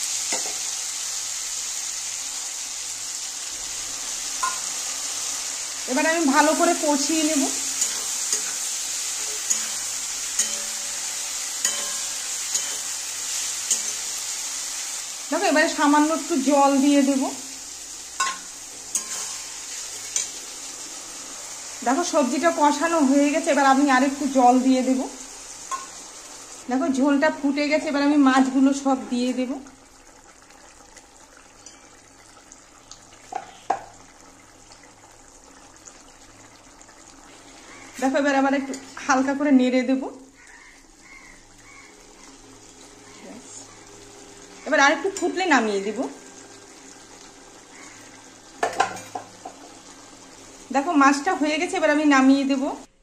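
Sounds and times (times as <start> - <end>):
vegetables sizzling in oil: 0.0 - 53.0
metal spatula scraping a pan: 7.6 - 14.9, 18.2 - 20.3
simmering gravy bubbling: 29.6 - 38.0.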